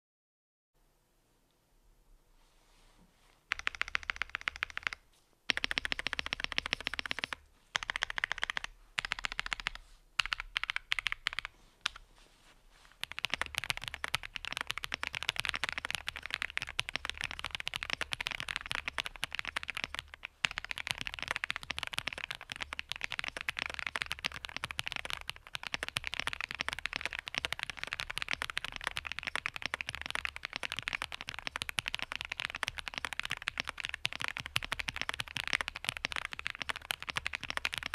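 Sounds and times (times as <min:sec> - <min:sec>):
mechanical keyboard typing: 0:03.5 - 0:12.0, 0:13.0 - 0:37.9.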